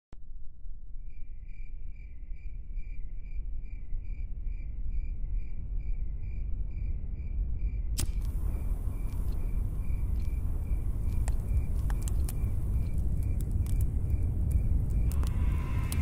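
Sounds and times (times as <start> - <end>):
cricket chirping: 0.9 - 16.0
low rumble: 6.3 - 16.0
loud hiss: 15.1 - 16.0.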